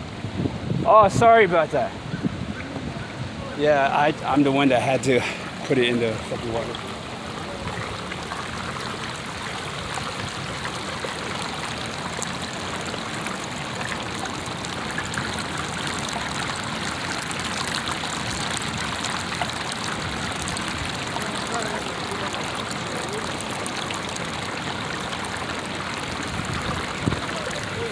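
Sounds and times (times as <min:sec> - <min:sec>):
water trickling along stone: 0:02.4 - 0:27.9.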